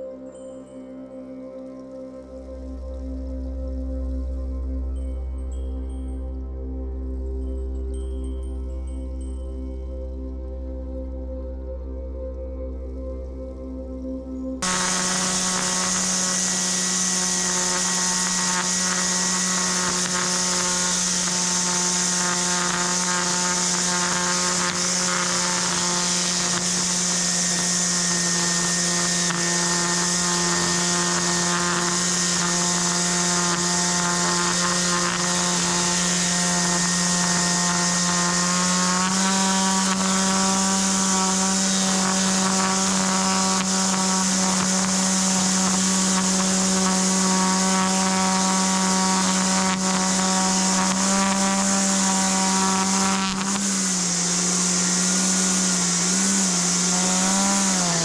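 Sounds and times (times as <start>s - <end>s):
small motor running: 14.6s - 58.0s.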